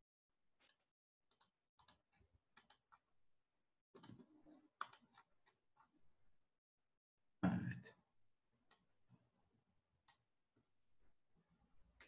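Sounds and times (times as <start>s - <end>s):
computer mouse clicks: 0.6s - 2.0s, 2.6s - 2.9s, 4.0s - 5.2s, 8.7s - 8.9s.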